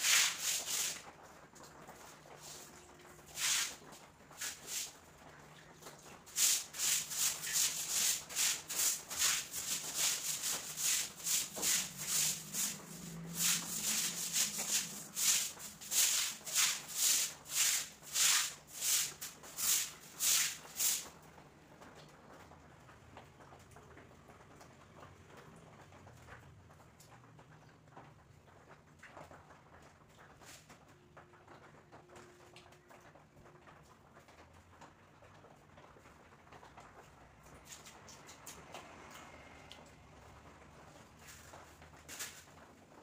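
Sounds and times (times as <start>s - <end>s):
broom scrubbing wet floor: 0.0s - 1.1s, 2.0s - 5.0s, 5.8s - 21.2s, 41.2s - 42.5s.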